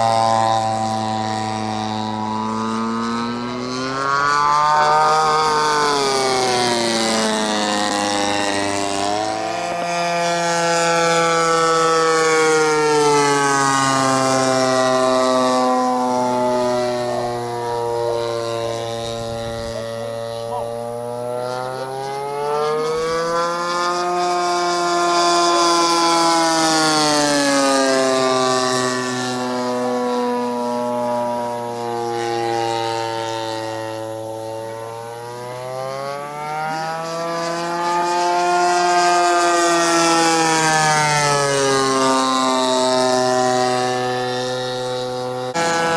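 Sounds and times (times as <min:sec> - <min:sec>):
model airplane engine: 0:00.0 - 0:45.9.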